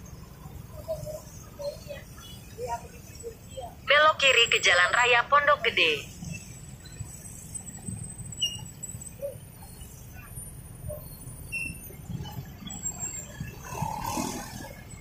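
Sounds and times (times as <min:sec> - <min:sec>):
brief high squeaks: 0:08.3 - 0:13.3
motorcycle traffic on wet road: 0:12.1 - 0:15.0.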